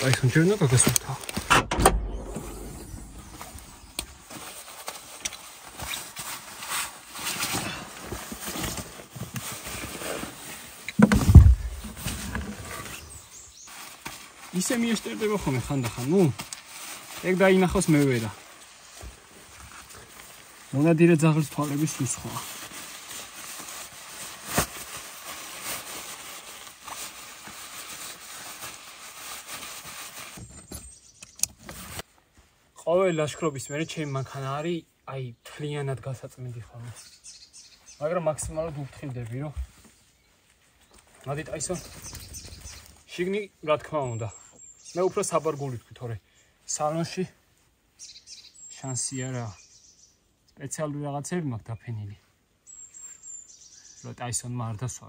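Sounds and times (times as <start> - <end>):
heavy thump: 1.4 - 3.8, 11.0 - 12.6.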